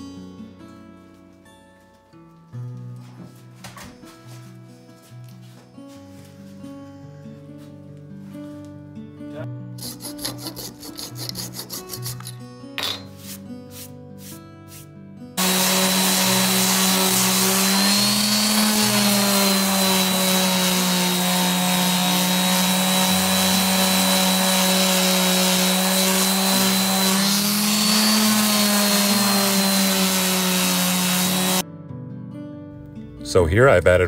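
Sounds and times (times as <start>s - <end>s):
orbital sander on wood: 15.4s - 31.6s.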